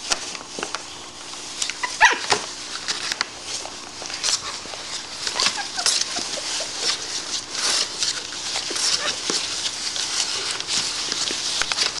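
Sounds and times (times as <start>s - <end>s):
puppies squeaking and whimpering: 1.6s - 2.4s, 4.3s - 10.6s.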